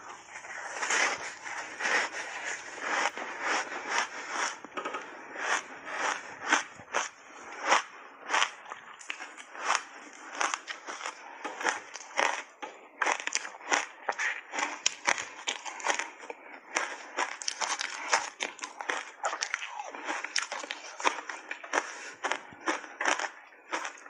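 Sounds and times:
ice crunching while chewed: 0:00.0 - 0:24.0.

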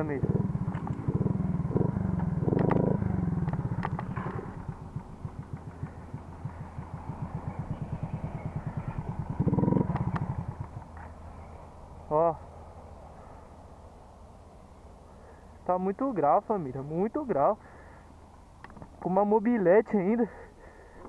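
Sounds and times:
moped engine revving: 0:00.0 - 0:11.5
sharp clicks: 0:02.5 - 0:04.4.

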